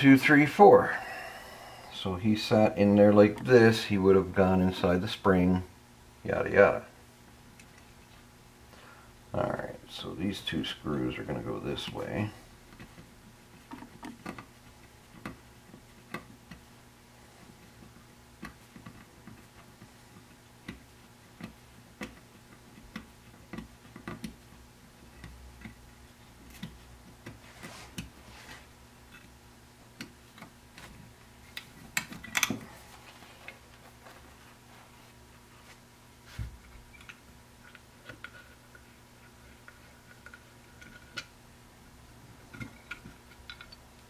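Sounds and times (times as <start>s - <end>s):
faint electrical hum: 0.0s - 44.0s
metal parts clicking and tapping: 31.5s - 32.6s, 42.5s - 43.8s.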